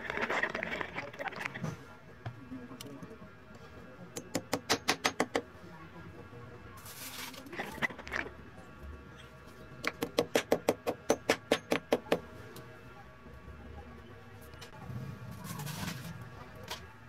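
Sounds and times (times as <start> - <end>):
scraping and handling noise: 0.0 - 3.0, 6.8 - 9.8, 14.4 - 17.0.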